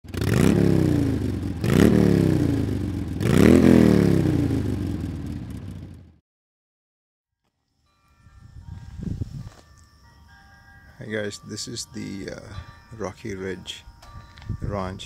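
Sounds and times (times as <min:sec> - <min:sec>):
motorcycle engine revving: 0:00.0 - 0:06.2.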